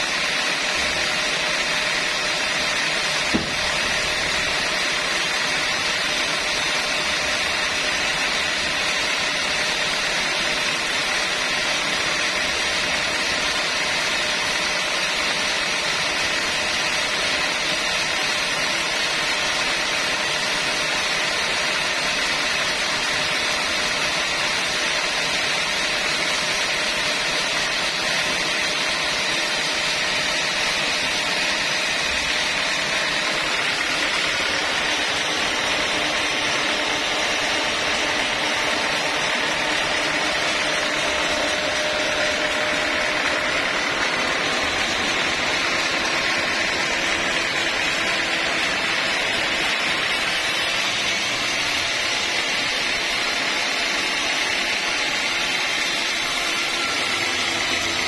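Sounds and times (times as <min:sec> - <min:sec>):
sawmill machinery running: 0:00.0 - 0:58.0.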